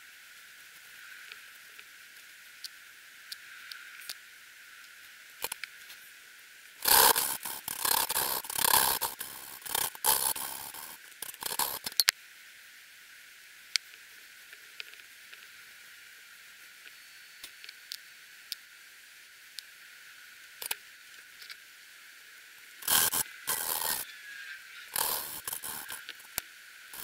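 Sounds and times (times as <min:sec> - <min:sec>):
valve grinding against seat: 0:06.8 - 0:12.0, 0:22.8 - 0:24.1, 0:24.9 - 0:26.4
sharp clicks: 0:06.8 - 0:12.1, 0:22.8 - 0:24.0, 0:24.9 - 0:26.4.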